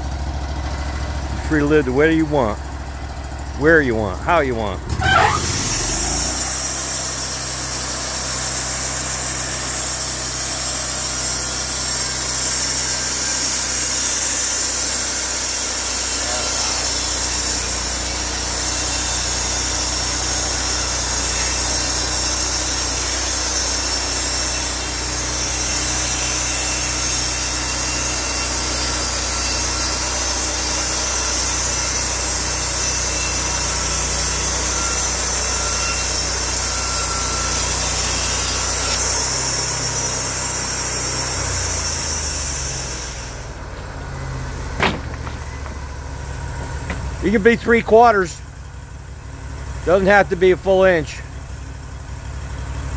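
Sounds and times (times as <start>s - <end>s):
sawmill engine droning: 0.0s - 52.9s
high hiss of saw: 5.2s - 43.6s.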